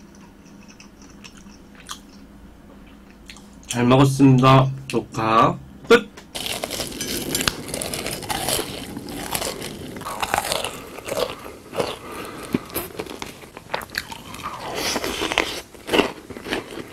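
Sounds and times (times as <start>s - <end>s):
crunchy eating and chewing: 0.0s - 2.3s, 6.3s - 16.9s.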